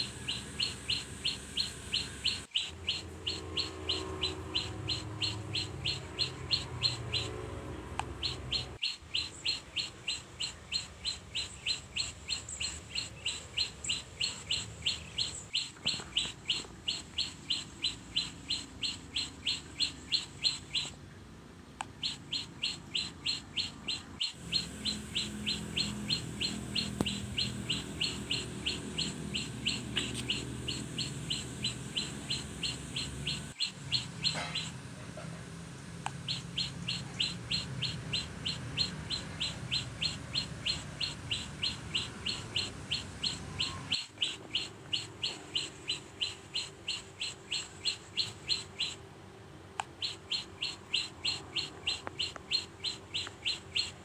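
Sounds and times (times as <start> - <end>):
small bird chirping: 0.0 - 21.0, 21.8 - 35.4, 36.1 - 49.1, 49.7 - 54.0.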